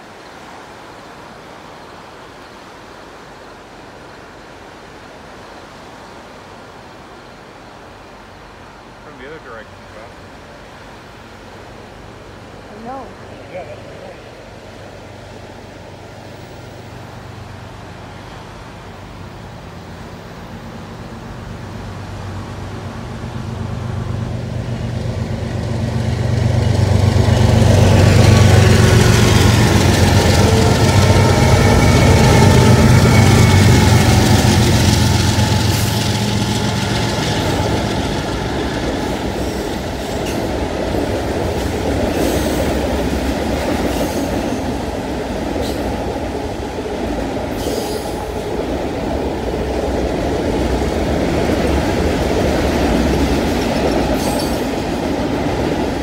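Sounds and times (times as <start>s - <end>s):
rail cars wheel noise: 0.0s - 56.0s
diesel locomotive engine drone: 7.1s - 56.0s.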